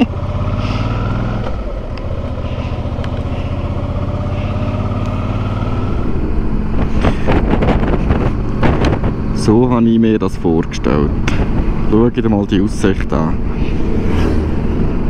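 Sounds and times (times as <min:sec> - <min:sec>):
motorcycle engine running: 0:00.0 - 0:09.7
loud rough noise: 0:00.4 - 0:09.7.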